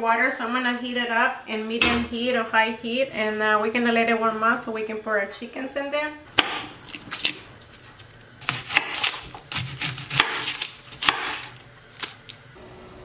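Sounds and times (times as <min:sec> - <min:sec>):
knife cutting onion on board: 0:06.4 - 0:11.6
garlic skins crackling: 0:06.4 - 0:12.6.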